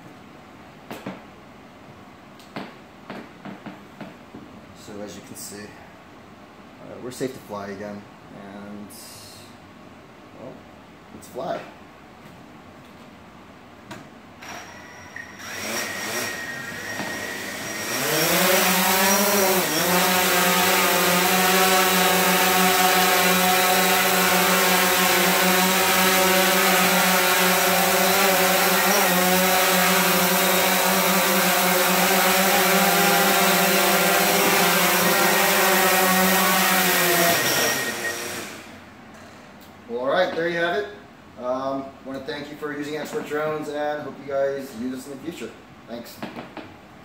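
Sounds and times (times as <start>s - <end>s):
drone motors whining: 14.4s - 20.0s, 37.2s - 38.8s.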